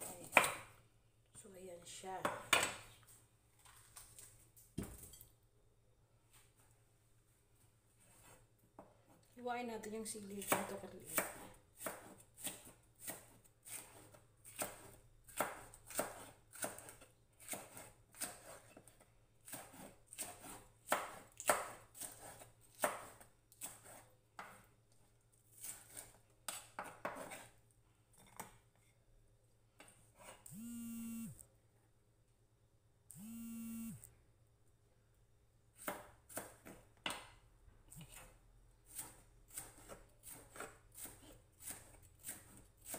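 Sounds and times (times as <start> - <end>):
knife slicing on wooden board: 11.2 - 24.6, 25.6 - 27.6.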